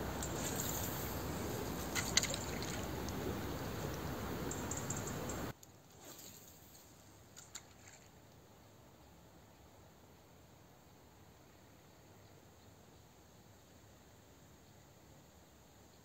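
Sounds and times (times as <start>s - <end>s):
wind: 0.0s - 16.0s
faint clicks: 3.8s - 5.8s.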